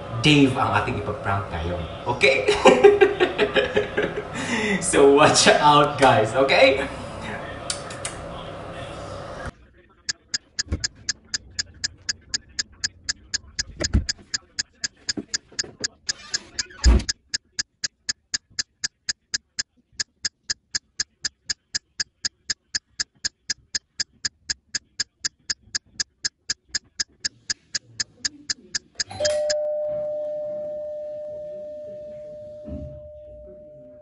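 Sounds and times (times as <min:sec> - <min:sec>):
clock ticking: 0:10.0 - 0:29.6
doorbell chime: 0:29.1 - 0:34.0.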